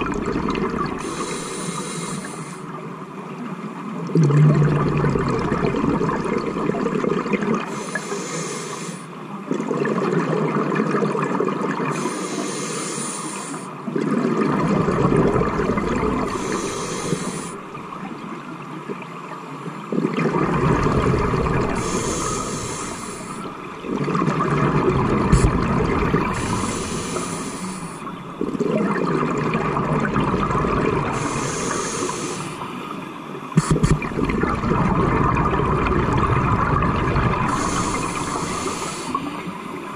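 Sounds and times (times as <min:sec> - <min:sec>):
exhaled bubbles gurgling: 0:00.0 - 0:02.8, 0:03.9 - 0:08.4, 0:09.4 - 0:39.9
regulator inhale hiss: 0:01.0 - 0:02.8, 0:07.7 - 0:09.2, 0:11.9 - 0:13.8, 0:16.2 - 0:17.6, 0:21.7 - 0:23.6, 0:26.2 - 0:28.2, 0:31.1 - 0:34.0, 0:37.5 - 0:39.9.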